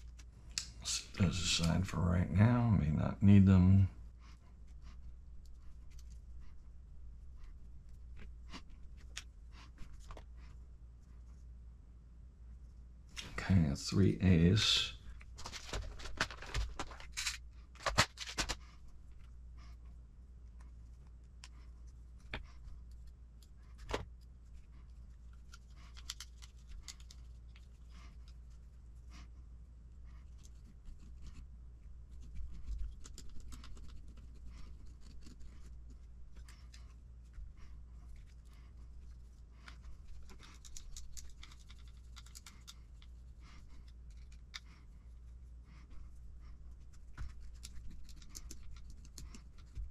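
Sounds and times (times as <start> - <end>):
hardware clicks and scratches: 15.2 - 19.3, 20.6 - 28.5, 32.1 - 44.9, 46.6 - 49.9.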